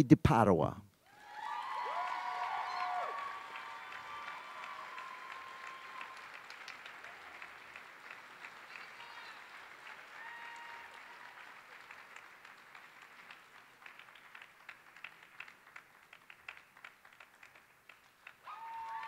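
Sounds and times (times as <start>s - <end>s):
audience applauding: 1.1s - 19.0s.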